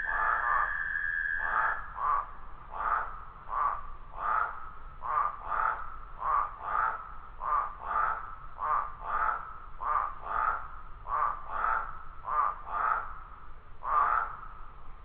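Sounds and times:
faint background tone: 0.0 - 6.2
frogs croaking: 0.0 - 14.8.

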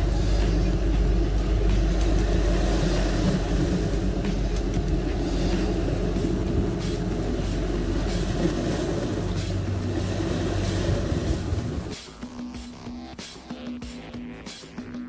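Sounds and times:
sea washing against rocks: 0.0 - 12.0
boat engines rumbling: 0.0 - 14.6.

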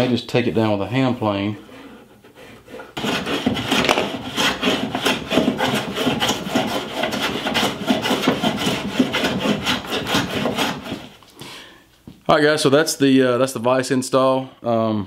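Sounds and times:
hand plane shaving wood: 0.4 - 11.2.

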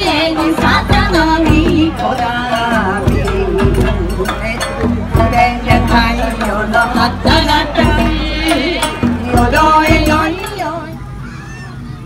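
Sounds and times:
person singing folk song: 0.0 - 11.1
steady drumbeats: 0.0 - 11.2.

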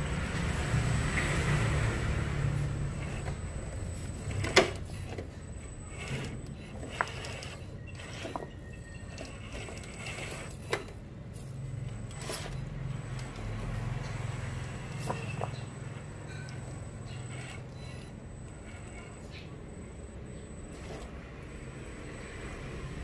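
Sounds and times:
toy truck motor hum: 0.0 - 23.0.

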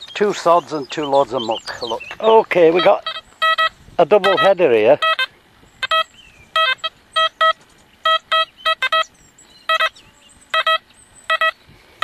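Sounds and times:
metal detector beeps: 2.7 - 9.1, 9.7 - 11.6.

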